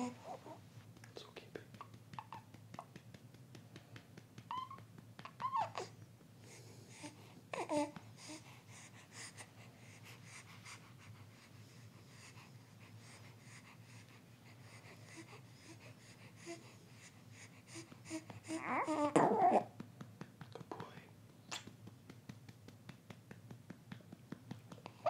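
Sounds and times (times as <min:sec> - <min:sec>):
patting on baby's back: 0:00.0 - 0:08.4, 0:13.0 - 0:25.0
baby breathing: 0:05.8 - 0:19.0
baby grunting: 0:18.6 - 0:19.7.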